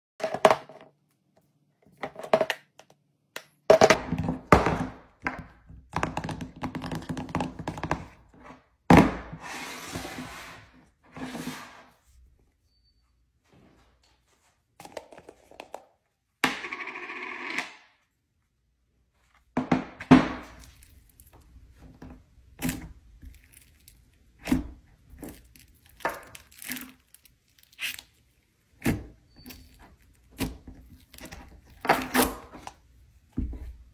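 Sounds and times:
plastic tubs knocking together: 0:03.7 - 0:08.2, 0:19.6 - 0:20.6.

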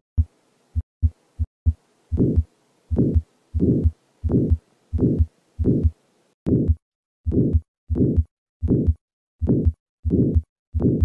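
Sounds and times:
heartbeat thuds: 0:00.2 - 0:05.9, 0:06.5 - 0:11.0
heart murmur: 0:02.1 - 0:05.9, 0:06.5 - 0:11.0.

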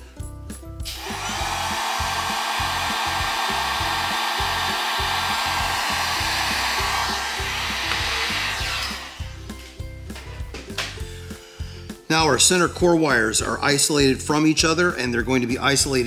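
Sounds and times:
heat gun blowing: 0:00.8 - 0:09.7.

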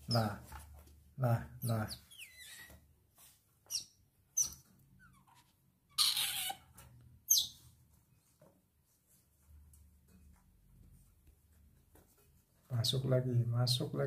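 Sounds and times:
baby otter squeaking: 0:01.6 - 0:02.8, 0:03.7 - 0:07.6
rough otter noise: 0:03.7 - 0:06.7.

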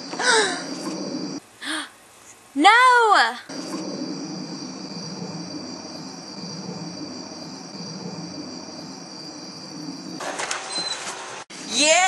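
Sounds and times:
crickets trilling: 0:00.0 - 0:01.4, 0:03.5 - 0:10.2
low background rumble: 0:00.0 - 0:01.6, 0:02.4 - 0:10.2.

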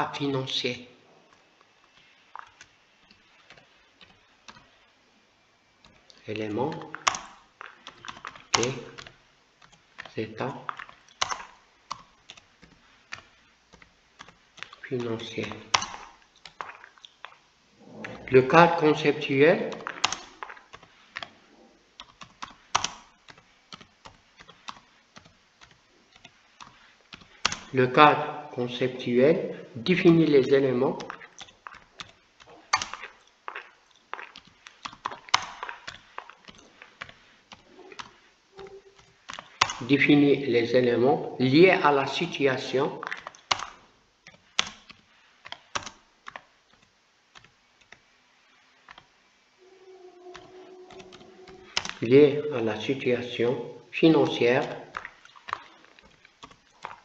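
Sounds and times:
computer keyboard keystrokes: 0:01.9 - 0:04.7, 0:05.8 - 0:17.4, 0:19.7 - 0:21.3, 0:22.0 - 0:27.7, 0:30.9 - 0:39.9, 0:43.0 - 0:48.0, 0:48.8 - 0:49.1, 0:50.3 - 0:52.1, 0:54.2 - 0:57.0
computer keyboard key clicks: 0:43.0 - 0:48.0.

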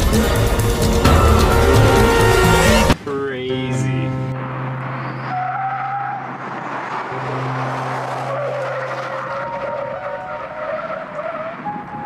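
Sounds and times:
tyres squealing on asphalt: 0:04.4 - 0:12.0.

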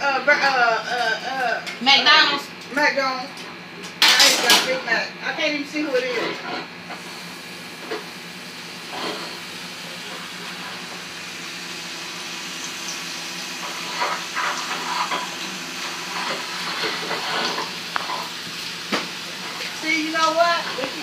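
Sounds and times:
frying oil crackling: 0:06.9 - 0:21.0
chips sizzling in hot grease: 0:07.0 - 0:21.0.

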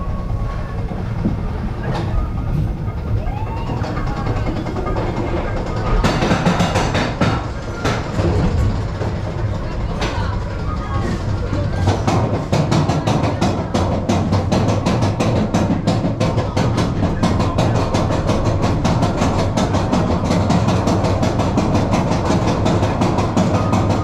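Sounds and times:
roller coaster fast clicking: 0:00.0 - 0:24.0.

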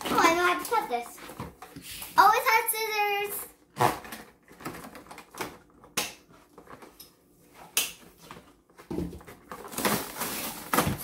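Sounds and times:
packaging rustling: 0:08.2 - 0:11.0.

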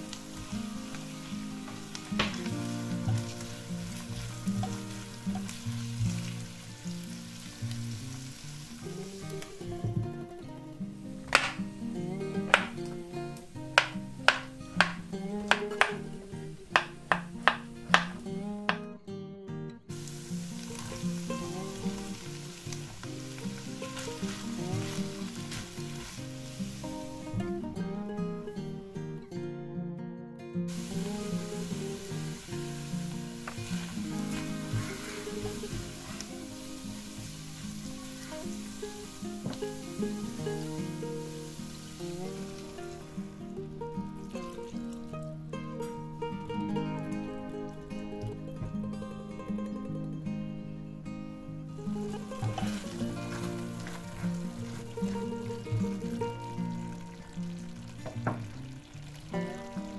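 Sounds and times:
meat sizzling in a frying pan: 0:00.0 - 0:09.9, 0:10.9 - 0:11.8, 0:13.5 - 0:18.3, 0:19.9 - 0:27.4, 0:30.7 - 0:45.2, 0:51.9 - 0:59.9
background music: 0:00.0 - 0:29.6, 0:30.7 - 0:59.9
soft background music: 0:19.8 - 0:29.3, 0:51.7 - 0:59.9
spatula stirring: 0:52.3 - 0:55.2.

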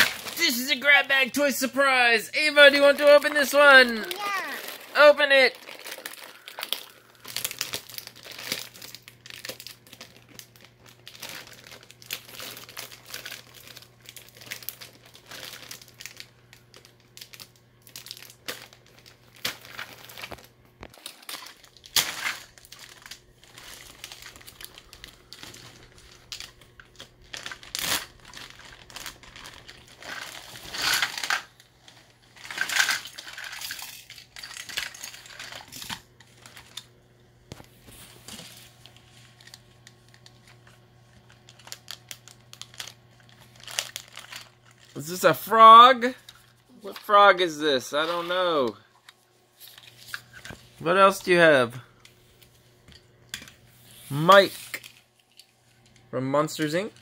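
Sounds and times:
plastic bag crinkling: 0:02.7 - 0:36.9, 0:37.5 - 0:47.2.

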